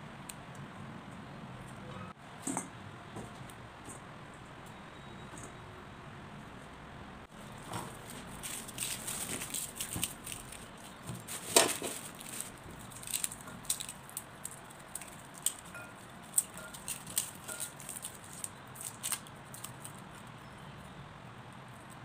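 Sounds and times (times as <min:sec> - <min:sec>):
dry garlic skins crackling: 0:07.3 - 0:22.0.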